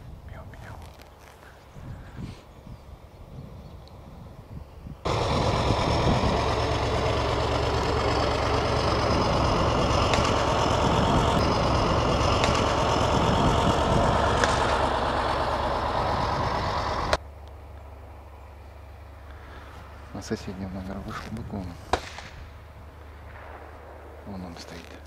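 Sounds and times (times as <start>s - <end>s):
wind buffeting microphone: 0.0s - 0.9s, 1.5s - 17.2s.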